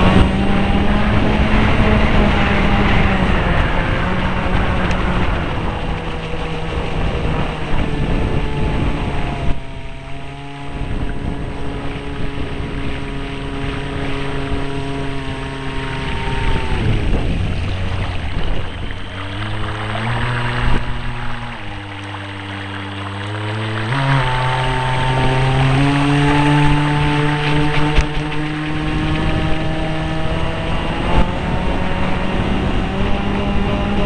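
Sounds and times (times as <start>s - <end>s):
electric motor whining: 0.0s - 34.0s
water rushing and splashing: 0.0s - 34.0s.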